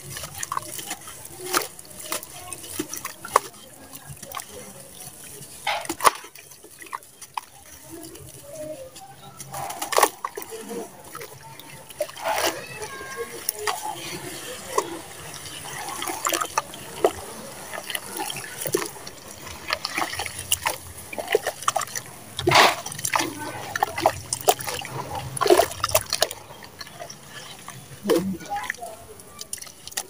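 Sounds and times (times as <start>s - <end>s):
hands squelching wet mud: 0.0s - 30.0s
water splashes: 0.0s - 30.0s.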